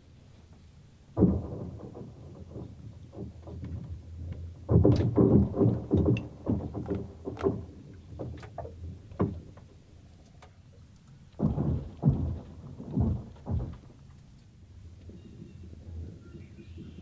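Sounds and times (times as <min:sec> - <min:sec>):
deep rumbling ice cracks: 0:01.2 - 0:09.6, 0:11.3 - 0:15.0.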